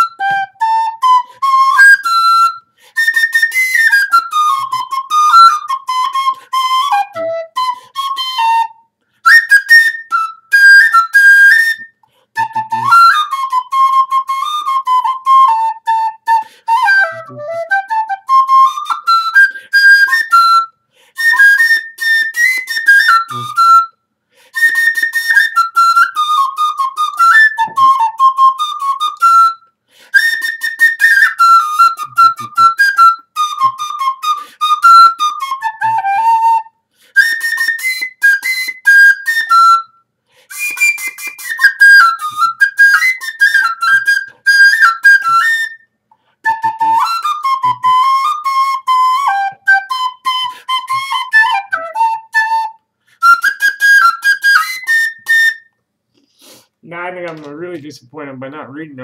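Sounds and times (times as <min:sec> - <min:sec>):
recorder melody: 0:00.0 - 0:24.0, 0:24.6 - 0:29.6, 0:30.2 - 0:39.9, 0:40.5 - 0:45.8, 0:46.4 - 0:55.7.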